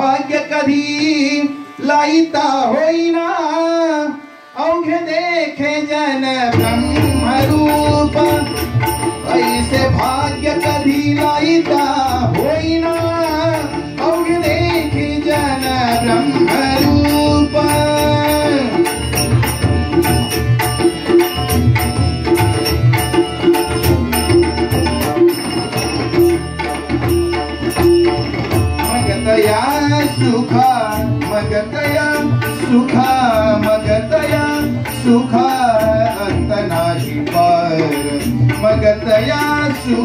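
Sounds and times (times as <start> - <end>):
person singing wordless melody: 0.0 - 19.2, 28.8 - 40.0
harmonium chords: 0.0 - 40.0
hand drums playing: 6.5 - 40.0.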